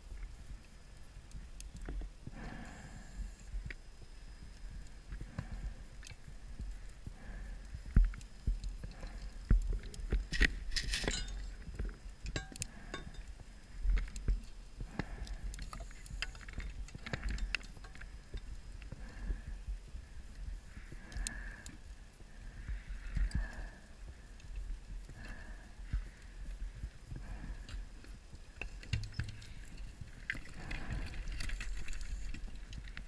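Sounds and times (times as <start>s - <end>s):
metal clinks and knocks underwater: 10.3s - 13.3s, 15.6s - 18.5s, 28.6s - 32.3s.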